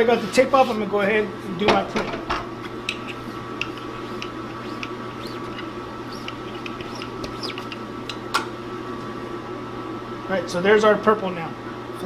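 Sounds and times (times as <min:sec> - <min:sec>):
steady shop hum: 0:00.0 - 0:12.0
squeegee squeaking on ink: 0:03.0 - 0:07.9.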